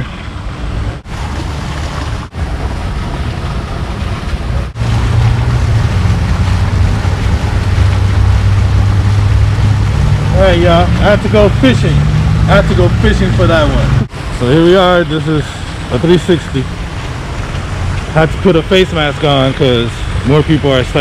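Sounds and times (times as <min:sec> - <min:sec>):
low rumble: 0:00.0 - 0:14.5
water rushing in a stream: 0:00.0 - 0:21.0.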